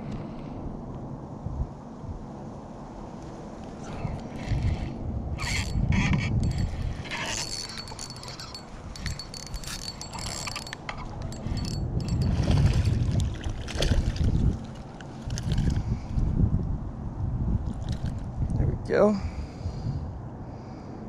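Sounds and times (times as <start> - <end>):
low rumbling on microphone: 3.7 - 20.4
fishing reel clicking and whining: 5.4 - 12.3.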